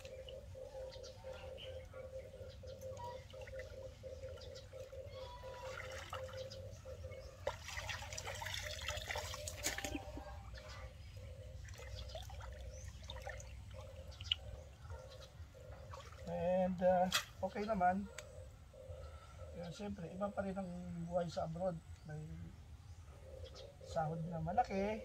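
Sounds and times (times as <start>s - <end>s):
muddy water sloshing and splashing: 3.0s - 10.4s, 11.6s - 17.5s.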